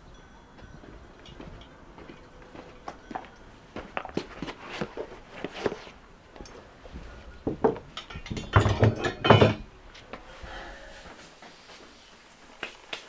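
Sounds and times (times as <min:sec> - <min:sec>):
knocks and clatters: 0:07.4 - 0:10.3.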